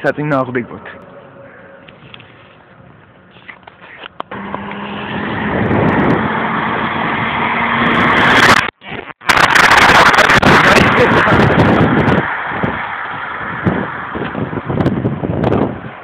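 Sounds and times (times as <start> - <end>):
cars passing by rush: 0.0 - 8.7, 9.3 - 16.0
racing car engines at full throttle: 4.2 - 8.7, 9.3 - 16.0.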